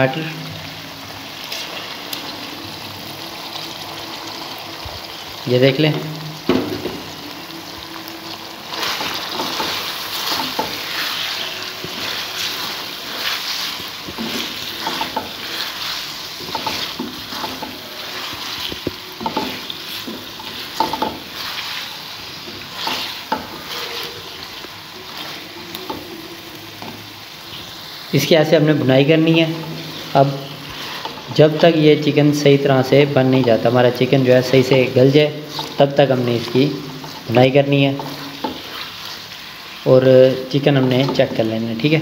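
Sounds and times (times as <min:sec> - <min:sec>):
food sizzling: 0:00.0 - 0:42.0
spatula scraping metal pan: 0:08.7 - 0:24.4, 0:33.4 - 0:39.0.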